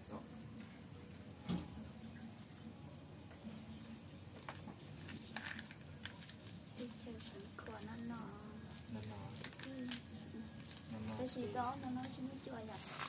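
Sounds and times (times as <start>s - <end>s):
crickets chirring: 0.0s - 13.0s
sharp knock: 1.4s - 1.8s.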